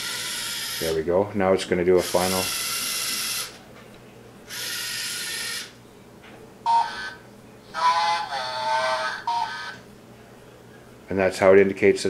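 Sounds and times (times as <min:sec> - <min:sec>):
robot motors whirring: 0:00.0 - 0:00.8, 0:02.0 - 0:03.6, 0:04.5 - 0:05.7
short electronic bursts: 0:02.0 - 0:03.6.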